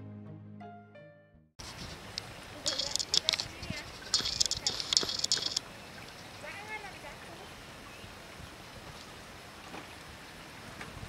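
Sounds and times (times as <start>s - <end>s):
small clicks: 1.6s - 5.6s
outdoor background hiss: 1.6s - 11.0s.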